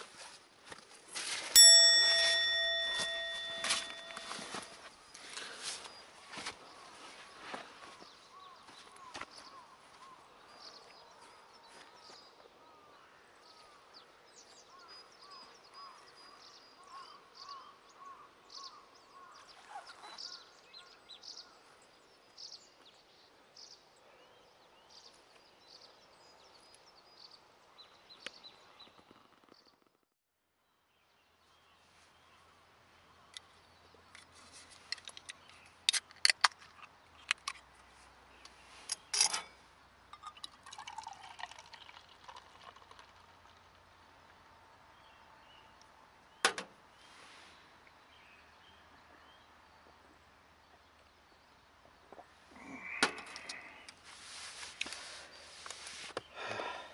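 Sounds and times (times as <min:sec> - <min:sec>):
wild birds chirping: 0:04.8 - 0:30.0, 0:38.0 - 0:56.9.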